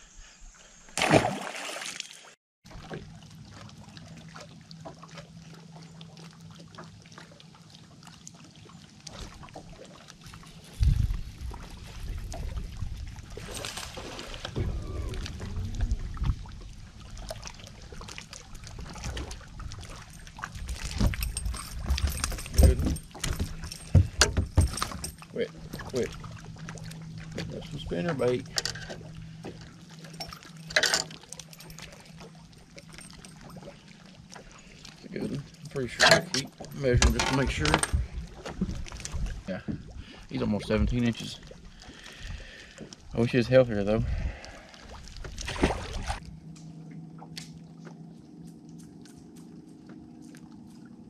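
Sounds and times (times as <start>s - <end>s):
water splashing and lapping: 0.9s - 51.0s
steady low hum: 10.2s - 51.0s
low rumbles: 10.4s - 44.6s.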